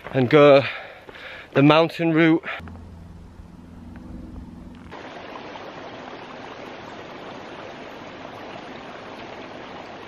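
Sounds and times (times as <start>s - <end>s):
low hum: 2.5s - 5.0s
stream rushing over stones: 4.9s - 10.0s.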